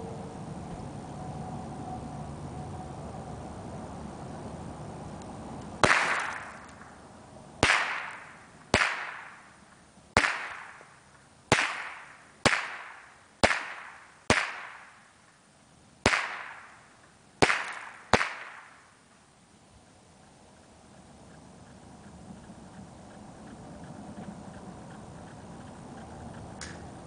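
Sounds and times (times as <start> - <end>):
rifle shots with echo: 5.8 - 7.0, 7.6 - 9.5, 10.2 - 10.9, 11.5 - 15.0, 16.0 - 16.8, 17.4 - 18.8.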